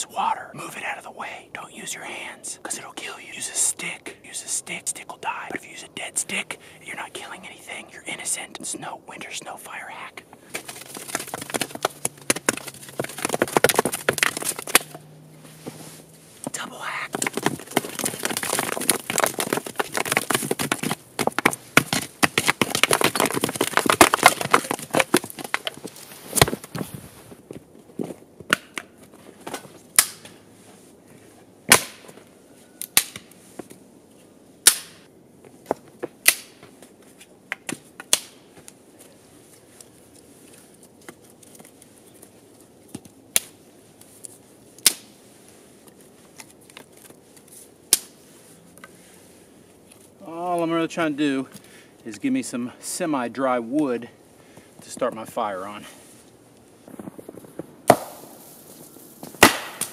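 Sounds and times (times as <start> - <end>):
wooden sticks clacking: 10.5 - 15.1
stick scraping snow: 10.5 - 27.4.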